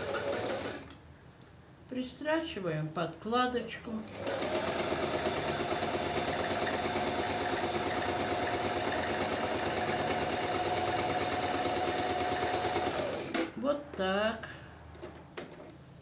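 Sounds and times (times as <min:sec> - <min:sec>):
sewing machine humming: 0:00.0 - 0:00.9, 0:04.0 - 0:13.5.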